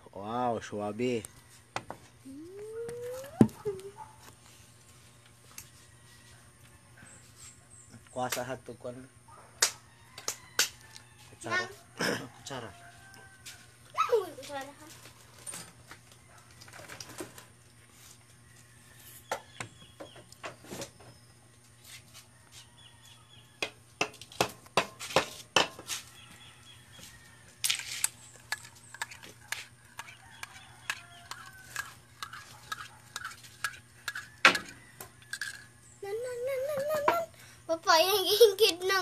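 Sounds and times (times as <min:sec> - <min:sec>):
metal spoon clinking in a mug: 0:30.0 - 0:34.3.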